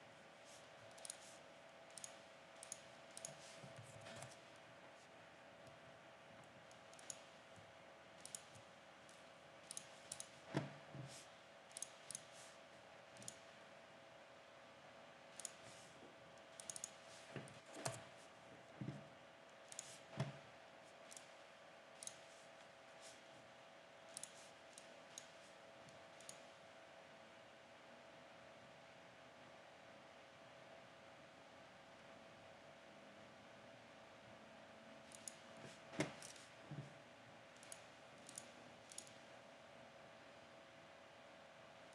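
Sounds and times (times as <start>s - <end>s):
faint steady hum: 0.0s - 41.9s
computer mouse and keys clicking: 0.5s - 5.8s, 6.4s - 13.6s, 15.3s - 23.3s, 24.1s - 26.6s, 35.0s - 39.3s.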